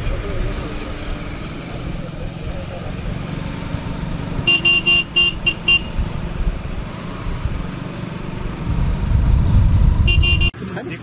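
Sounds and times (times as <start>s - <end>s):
traffic rumble: 0.0s - 11.0s
vehicle horn beeping: 4.4s - 6.0s, 10.1s - 10.6s.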